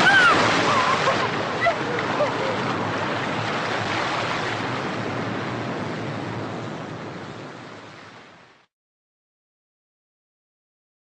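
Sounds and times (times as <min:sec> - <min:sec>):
sea surf washing on beach: 0:00.0 - 0:08.7.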